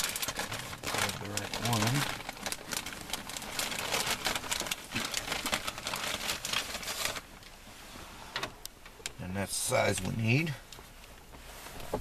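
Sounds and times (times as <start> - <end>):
leather rustling and crinkling: 0.0 - 7.4.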